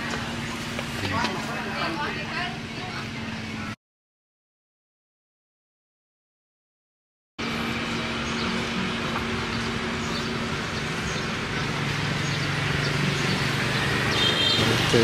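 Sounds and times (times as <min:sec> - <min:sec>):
vehicle engine hum: 0:00.0 - 0:03.8, 0:07.4 - 0:15.0.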